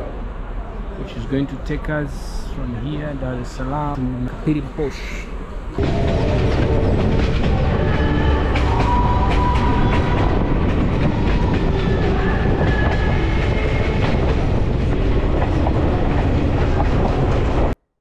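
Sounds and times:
train wheels rumbling on rails: 3.8 - 17.8.

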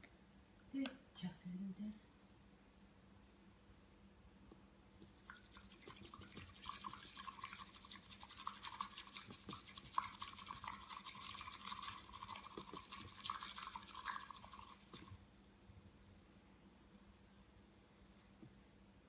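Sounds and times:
whisk brushing tea in bowl: 4.9 - 15.2.

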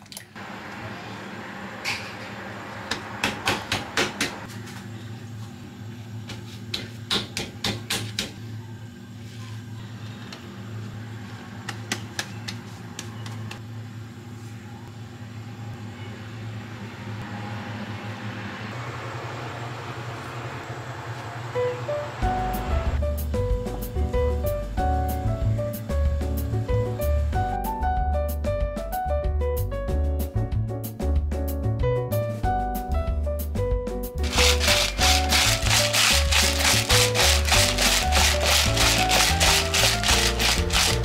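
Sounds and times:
paper towels patting meat: 34.2 - 41.0.

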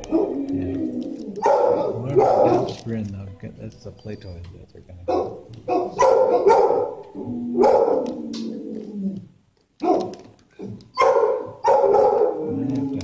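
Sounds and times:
dogs barking: 0.0 - 2.9, 5.0 - 8.7, 9.8 - 13.0.

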